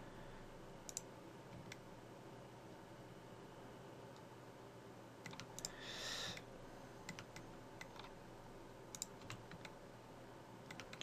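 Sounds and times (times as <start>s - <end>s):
mouse and keyboard clicks: 5.2s - 5.8s, 7.1s - 8.2s, 8.9s - 9.8s, 10.7s - 11.0s.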